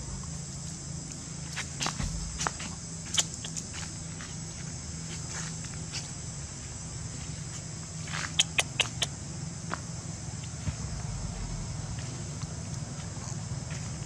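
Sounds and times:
high insect buzz: 0:00.0 - 0:14.0
sharp clicks: 0:03.1 - 0:03.6, 0:08.3 - 0:09.1
low rumble: 0:10.7 - 0:12.5.

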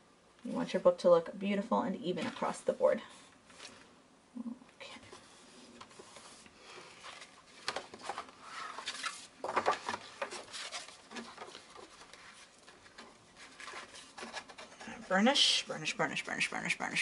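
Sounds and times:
paper rustling and crinkling: 0:03.4 - 0:03.9, 0:05.1 - 0:16.5.

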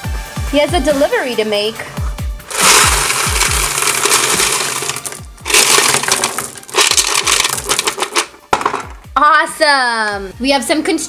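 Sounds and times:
pebbles clattering onto hard surface: 0:02.5 - 0:09.0.

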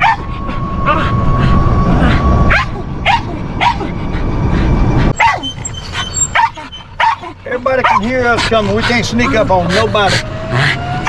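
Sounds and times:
dog barking and yipping: 0:00.0 - 0:00.4, 0:02.5 - 0:03.9, 0:05.2 - 0:09.9
low rumble: 0:00.0 - 0:11.0.

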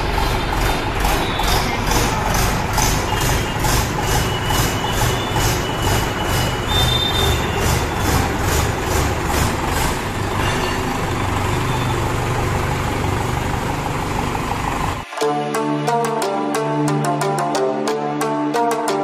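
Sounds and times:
diesel tractor engine idling: 0:00.0 - 0:15.1
music: 0:15.0 - 0:19.0.

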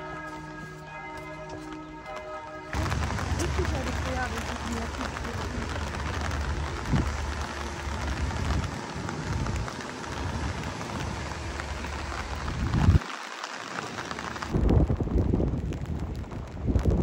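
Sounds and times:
steady rain falling: 0:00.0 - 0:17.0
low rumble: 0:02.7 - 0:13.0.

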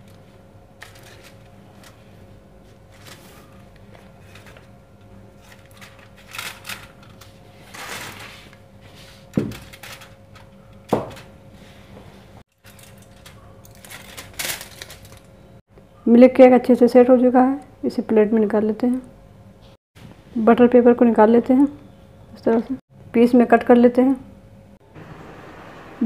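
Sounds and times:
aluminium foil crinkling: 0:00.8 - 0:04.7, 0:05.4 - 0:08.6, 0:09.5 - 0:11.3, 0:12.5 - 0:15.4.

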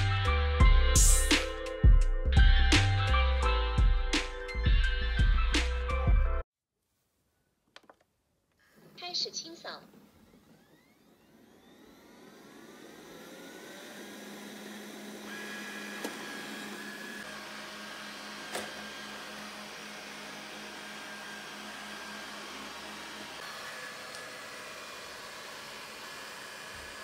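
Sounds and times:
robot vacuum motors whirring: 0:10.0 - 0:27.0.

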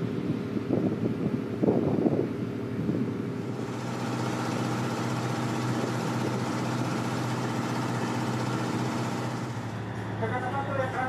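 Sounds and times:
boat engine humming: 0:02.3 - 0:11.0.

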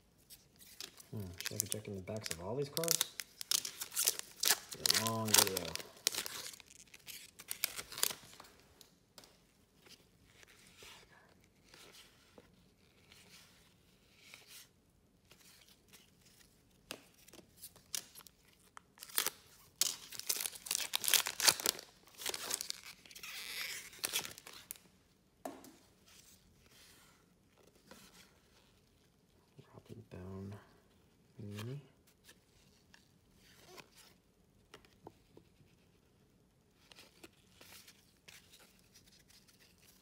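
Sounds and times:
cards rustling: 0:00.3 - 0:10.8, 0:15.3 - 0:24.8
wrappers torn and crinkled: 0:00.7 - 0:08.5, 0:17.8 - 0:24.8.

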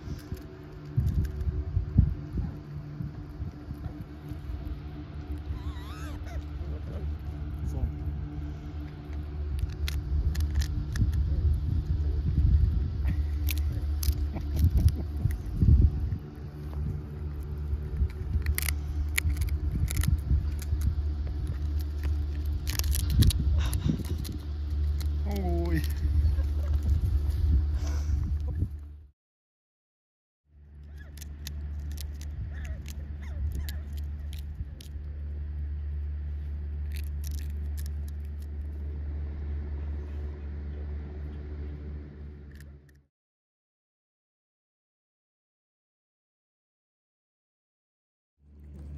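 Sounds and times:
crackles and rustles: 0:00.0 - 0:28.9, 0:30.8 - 0:40.2
low mechanical hum: 0:00.0 - 0:29.1, 0:30.5 - 0:43.1, 0:48.4 - 0:48.9
wind rumble on microphone: 0:00.0 - 0:29.1, 0:30.9 - 0:35.2.

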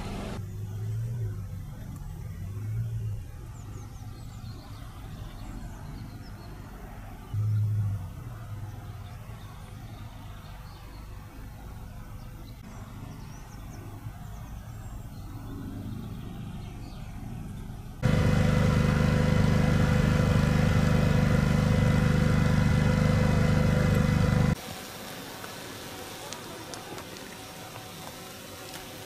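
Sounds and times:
loud engine running: 0:00.0 - 0:00.4, 0:18.0 - 0:24.6
low steady rumble: 0:07.3 - 0:10.2, 0:13.3 - 0:24.6.

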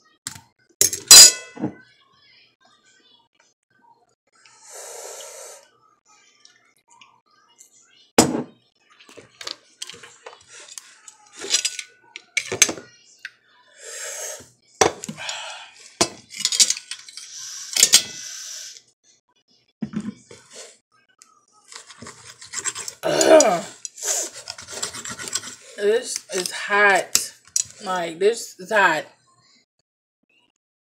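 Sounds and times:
cutlery clinking on a plate: 0:00.8 - 0:01.8, 0:11.4 - 0:12.8, 0:22.0 - 0:25.6
short hissing noises: 0:13.8 - 0:14.4, 0:17.3 - 0:18.8.

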